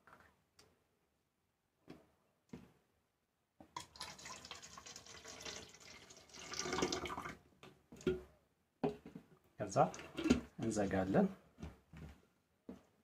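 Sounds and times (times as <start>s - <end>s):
liquid pouring into bottle: 3.8s - 7.4s.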